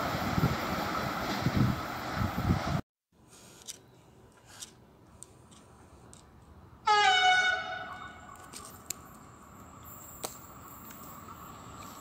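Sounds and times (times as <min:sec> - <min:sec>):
locomotive horn blast: 0:06.8 - 0:08.4.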